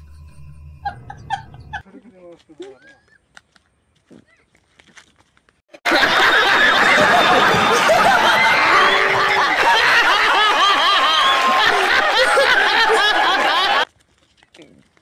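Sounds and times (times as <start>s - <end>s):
crowd laughing loudly: 5.8s - 13.9s.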